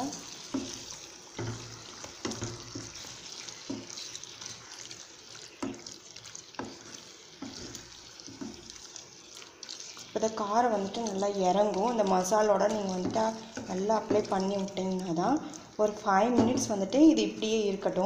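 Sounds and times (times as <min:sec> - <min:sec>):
frying sizzle: 0:00.0 - 0:18.0
spatula knocking against pan: 0:01.4 - 0:03.0.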